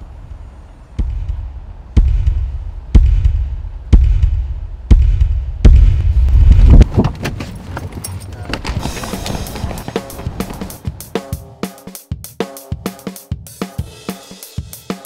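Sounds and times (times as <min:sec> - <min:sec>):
deep bass hits with rumble: 0:01.0 - 0:07.0.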